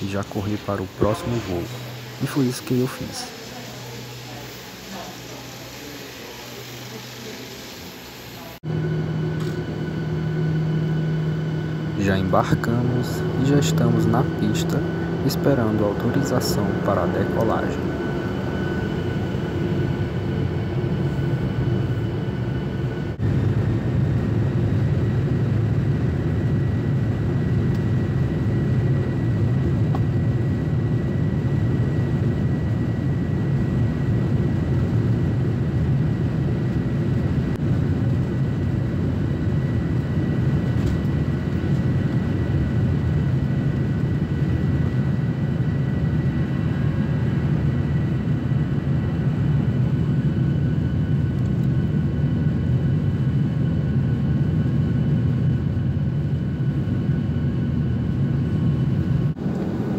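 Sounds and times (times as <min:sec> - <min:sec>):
high whining tones: 0:00.0 - 0:23.2
jet engine rumble: 0:00.0 - 0:59.9.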